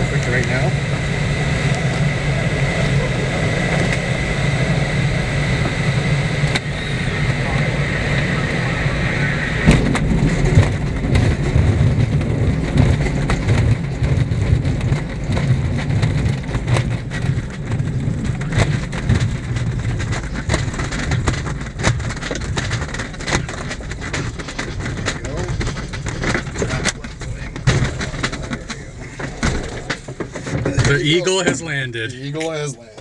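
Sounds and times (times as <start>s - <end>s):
low rumble of wheel on turf: 0.0s - 33.0s
airframe knocks and rattles: 9.8s - 31.2s.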